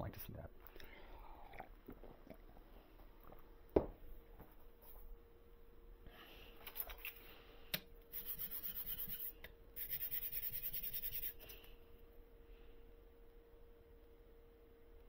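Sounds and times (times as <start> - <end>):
metal plate scrubbed on sandpaper: 8.1 - 11.5.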